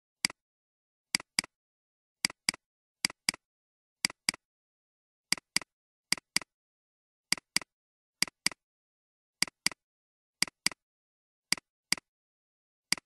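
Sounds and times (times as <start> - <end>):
computer mouse double-clicking: 2.2 - 3.4, 5.3 - 6.5, 7.3 - 8.6.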